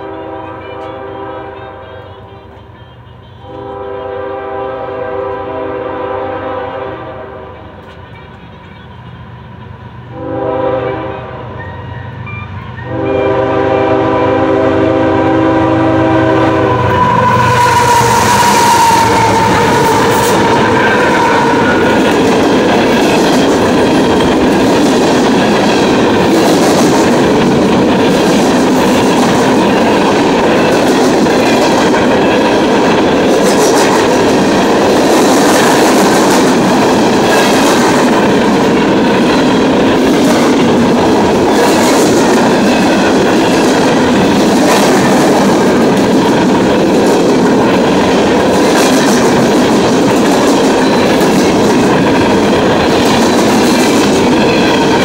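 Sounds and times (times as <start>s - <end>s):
freight train rumbling past: 0.0s - 55.0s
wheels clacking over rail joints: 18.2s - 55.0s.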